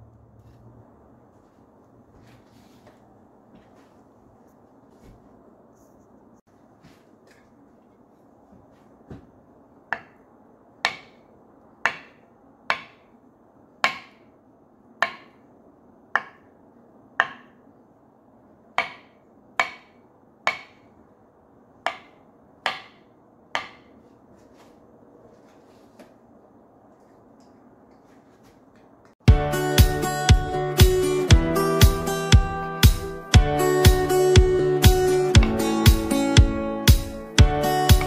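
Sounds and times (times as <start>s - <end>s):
knife tapping on wooden cutting board: 9.9s - 10.2s, 10.8s - 11.2s, 11.8s - 13.1s, 13.8s - 14.2s, 15.0s - 15.4s, 16.1s - 16.5s, 17.2s - 17.5s, 18.8s - 20.8s, 21.9s - 23.0s, 23.6s - 23.9s.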